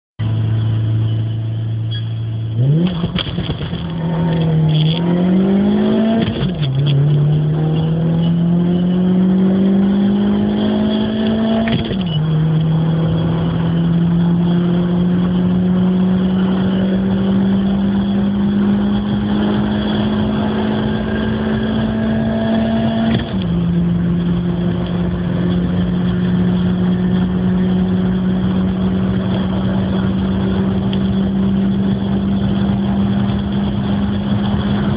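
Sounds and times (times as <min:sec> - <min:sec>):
car engine accelerating: 0:00.2 - 0:34.9.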